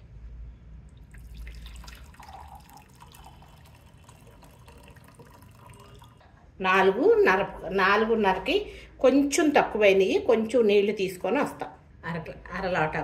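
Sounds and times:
liquid trickling into steel cup: 0.9s - 6.2s.

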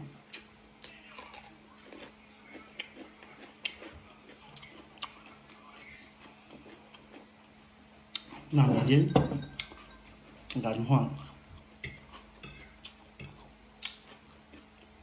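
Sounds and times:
crunching cucumber: 0.2s - 8.4s.

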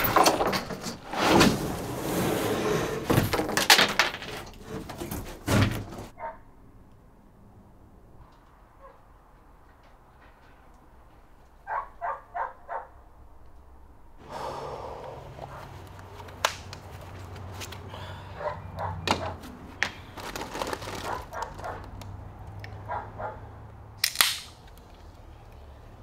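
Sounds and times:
dog barking: 6.2s - 6.5s, 8.8s - 9.0s, 11.7s - 13.0s, 18.4s - 19.3s, 21.1s - 21.8s, 22.8s - 23.5s
can cracked open with hiss: 24.0s - 24.6s.

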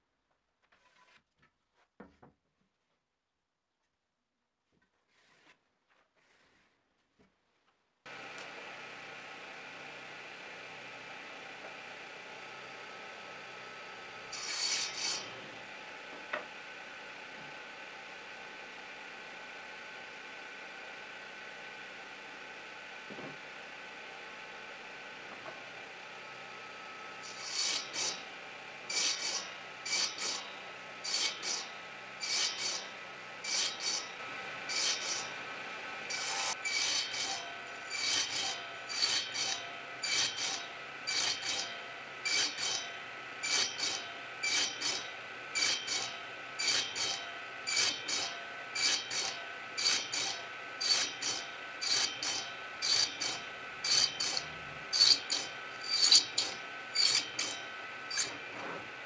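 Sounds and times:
rasp strokes across wood: 5.1s - 5.6s, 6.2s - 6.8s, 28.9s - 35.5s, 36.1s - 41.7s, 45.6s - 59.0s.

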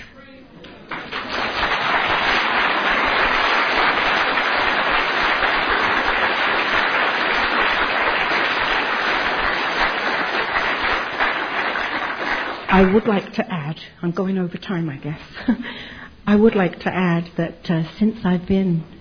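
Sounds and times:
audience applauding: 0.6s - 13.3s.

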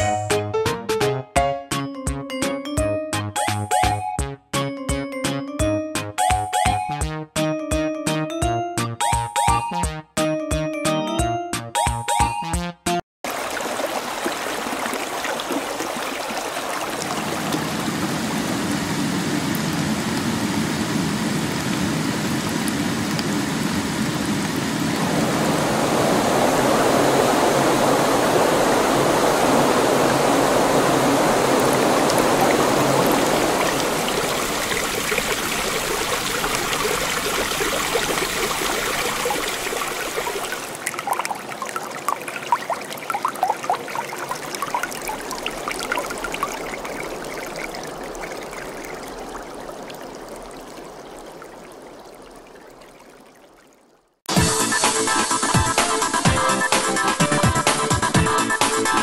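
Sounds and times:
hose water spraying and splashing: 13.2s - 50.6s.

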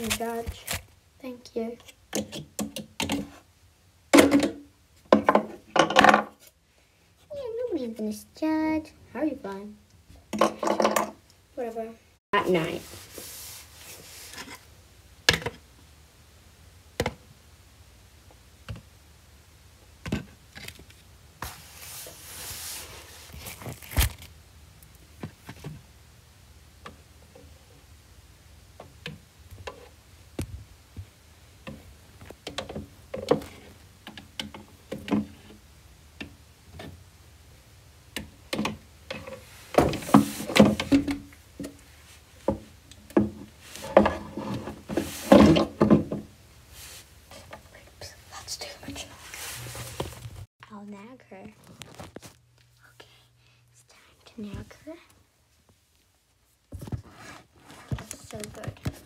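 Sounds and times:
plastic toys knocking and clicking: 4.2s - 6.4s
rustling: 12.4s - 14.7s, 20.5s - 25.8s, 46.7s - 50.5s.

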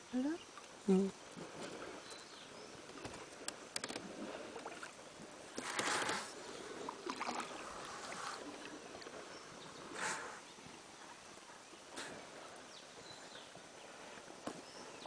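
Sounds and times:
paddle splashing water: 0.6s - 10.8s.

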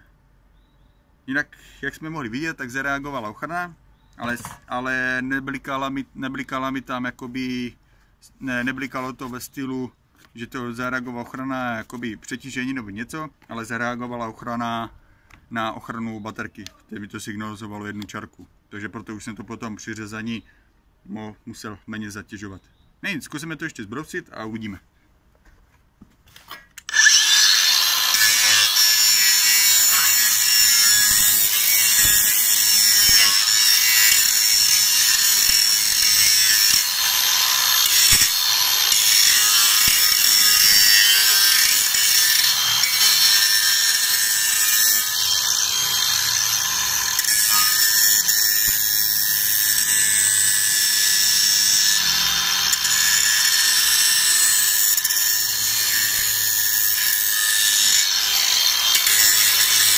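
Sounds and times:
angle grinder grinding steel: 26.9s - 59.9s.

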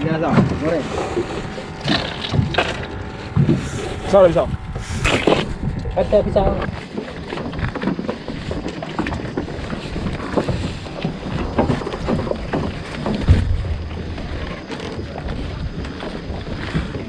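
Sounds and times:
knocks and clatter on boat: 0.0s - 4.5s, 5.1s - 17.0s
low rumble of wind and water: 0.0s - 17.0s
heavy thump: 13.1s - 14.6s.

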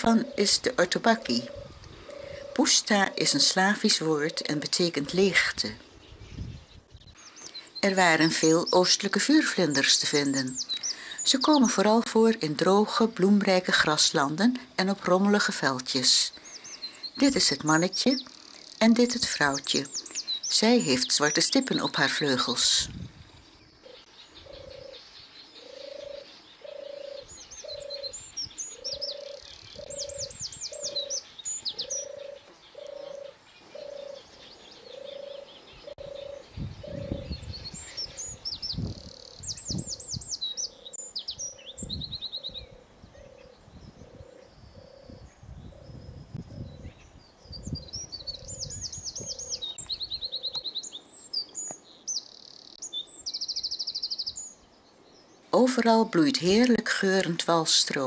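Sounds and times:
frog calling: 0.0s - 5.9s, 23.8s - 37.4s, 38.0s - 46.0s
bird chirping trills: 0.0s - 58.0s.

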